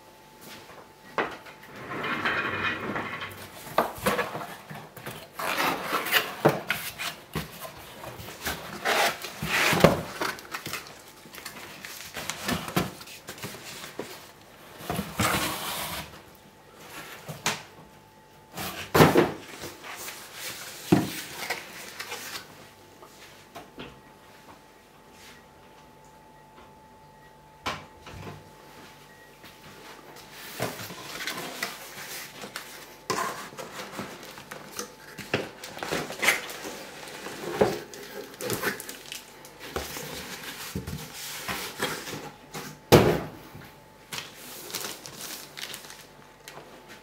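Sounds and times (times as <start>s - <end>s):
cardboard boxes scraping: 5.2s - 10.4s, 14.8s - 16.2s.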